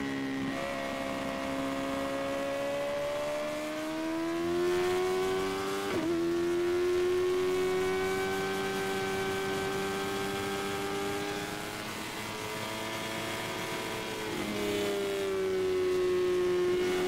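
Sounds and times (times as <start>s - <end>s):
motorcycle engine revving: 0.0s - 17.0s.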